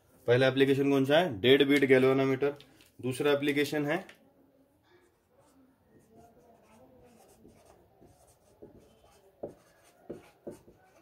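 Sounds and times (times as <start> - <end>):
marker scratching on paper: 5.1 - 11.0.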